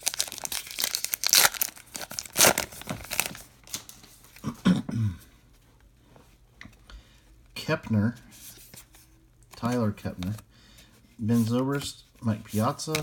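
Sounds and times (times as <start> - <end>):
foil wrapper tearing and crinkling: 0.0 - 4.0.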